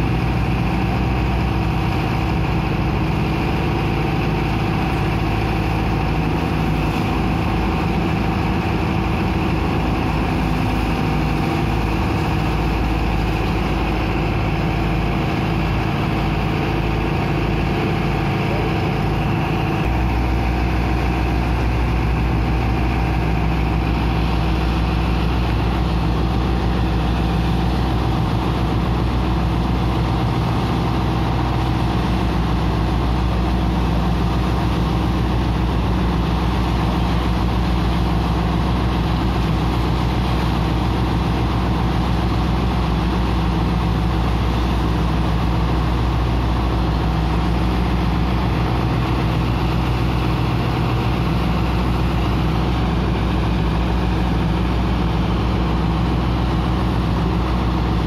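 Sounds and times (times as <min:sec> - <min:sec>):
pump engine running: 0:00.0 - 0:58.0
rush of water and sand slurry: 0:00.0 - 0:58.0.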